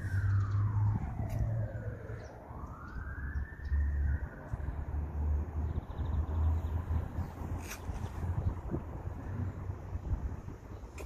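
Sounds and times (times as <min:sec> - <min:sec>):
fire truck siren wailing: 0:00.0 - 0:05.4.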